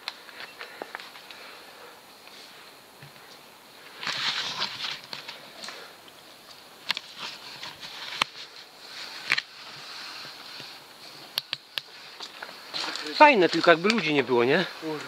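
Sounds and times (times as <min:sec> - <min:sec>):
faint steady hiss: 0:00.0 - 0:15.0
bike rolling down rocky trail: 0:03.8 - 0:15.0.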